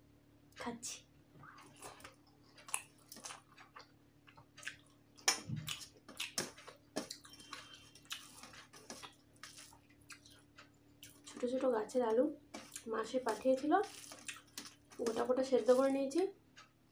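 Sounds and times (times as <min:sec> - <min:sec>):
close chewing: 0:01.5 - 0:11.4, 0:12.5 - 0:16.0
fingers squishing rice: 0:04.4 - 0:11.2, 0:12.5 - 0:16.0
wet mouth clicks and smacks: 0:04.6 - 0:07.3.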